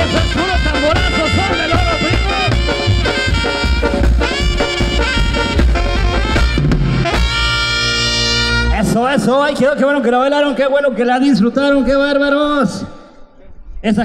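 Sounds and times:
bass drum beat: 0.0s - 8.0s
saxophones and brass: 0.0s - 9.3s.

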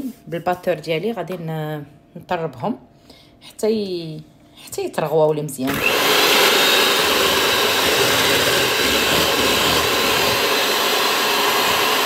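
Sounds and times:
electric hand mixer whisking: 5.7s - 12.0s.

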